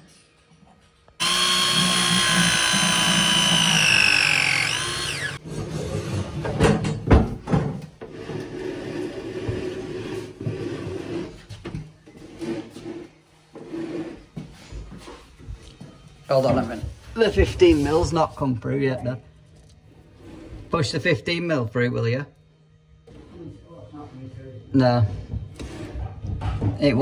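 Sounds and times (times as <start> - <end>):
power drill running: 1.2 - 5.4.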